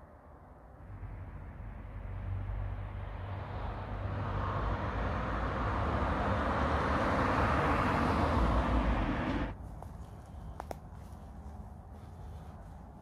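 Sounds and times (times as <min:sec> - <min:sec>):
car passing by: 0:00.8 - 0:09.6.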